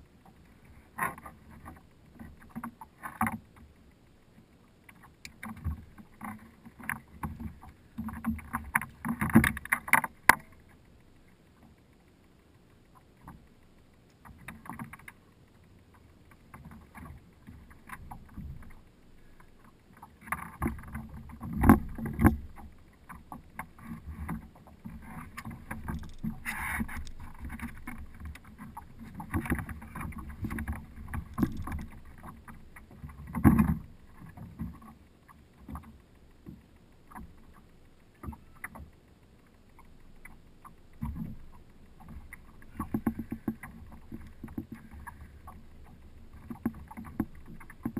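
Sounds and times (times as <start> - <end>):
water lapping against kayak hull: 0.0 - 47.9.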